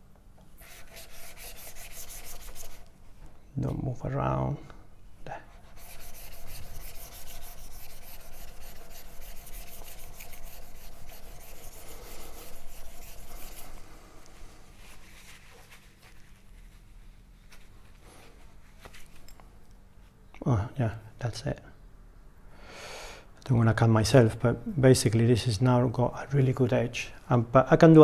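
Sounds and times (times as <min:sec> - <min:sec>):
paper towel rustling: 0:14.4 - 0:19.2.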